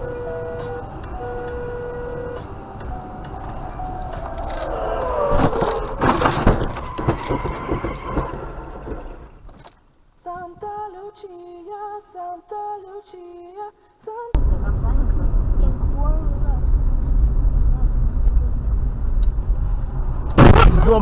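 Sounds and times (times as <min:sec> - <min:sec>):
simple melody: 0:00.0 - 0:04.5
tyre squeal: 0:03.6 - 0:08.8
car crash crunching impacts: 0:04.6 - 0:09.7, 0:20.3 - 0:21.0.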